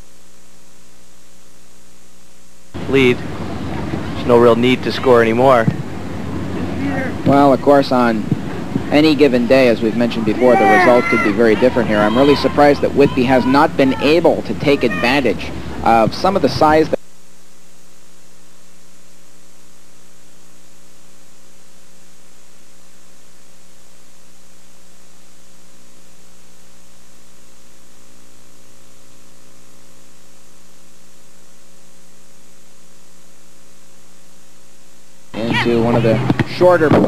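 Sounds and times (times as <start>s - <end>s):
electrical mains hum: 0.0s - 37.0s.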